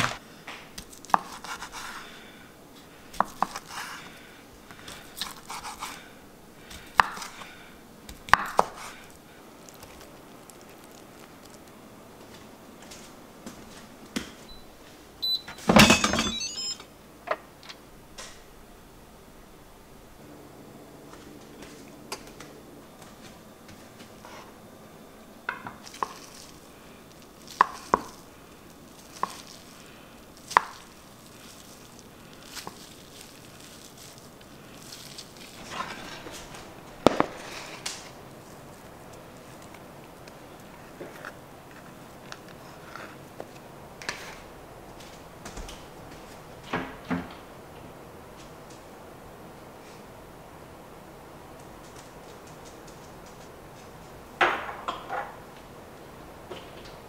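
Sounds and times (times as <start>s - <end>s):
cabinet door opening: 15.5s - 16.6s.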